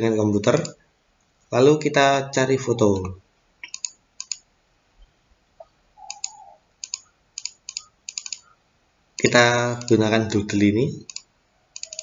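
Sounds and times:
mouse button clicking: 6.0 - 8.4, 11.8 - 12.0.

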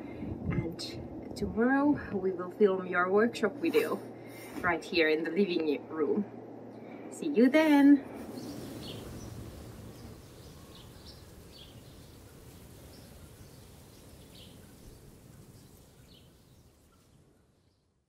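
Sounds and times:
bird chirps: 8.2 - 17.9.

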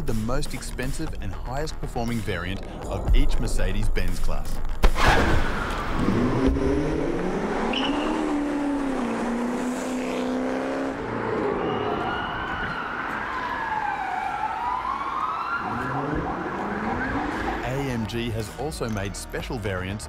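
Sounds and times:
car engine revving: 5.5 - 12.2, 15.6 - 17.9.

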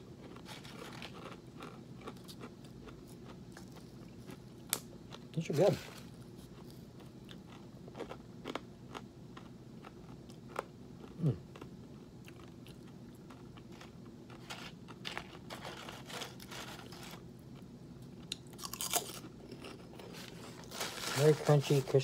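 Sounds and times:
crunchy snack chewing: 0.1 - 21.3.

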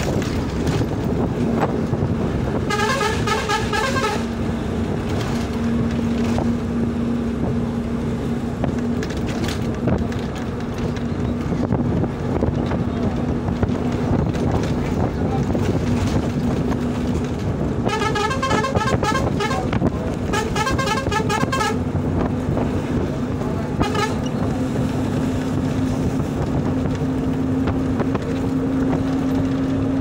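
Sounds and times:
vehicle engine and road rumble: 0.0 - 30.0
vehicle horn honking: 2.6 - 4.4, 17.8 - 21.8, 23.8 - 24.3.

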